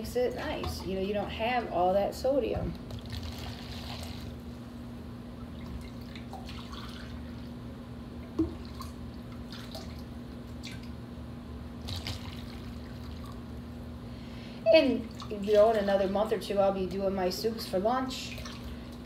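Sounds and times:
steady low hum: 0.0s - 19.0s
liquid pouring and dripping: 5.4s - 7.5s, 8.2s - 10.9s.

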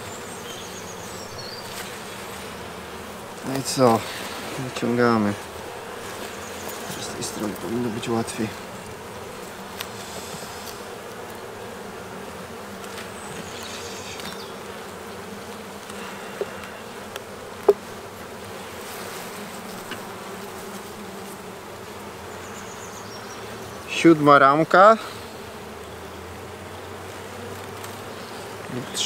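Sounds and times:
bees humming: 0.0s - 29.0s
hive tool cracking frame: 1.6s - 22.4s, 27.4s - 29.0s.

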